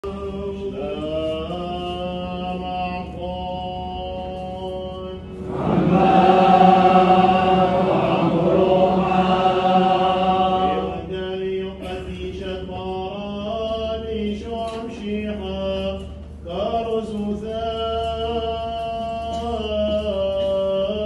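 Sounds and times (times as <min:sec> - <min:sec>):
men chanting: 0:05.3 - 0:12.4.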